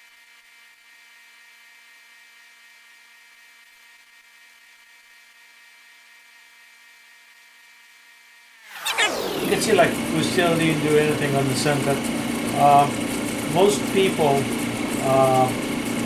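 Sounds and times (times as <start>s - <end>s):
grinding machine motor whine: 8.7s - 16.0s.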